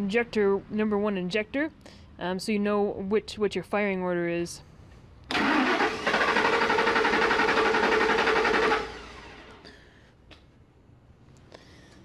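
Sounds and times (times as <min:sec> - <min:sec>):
starter motor cranking engine: 0:05.3 - 0:09.7.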